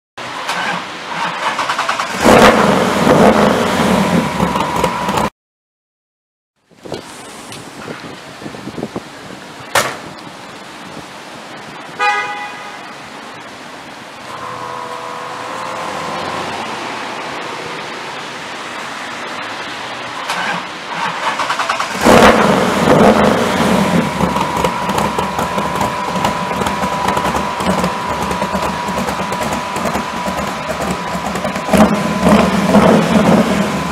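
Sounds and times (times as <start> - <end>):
car engine starting and running: 0.2 - 5.3, 13.3 - 33.9
car horn toot: 12.0 - 13.1, 14.2 - 16.7.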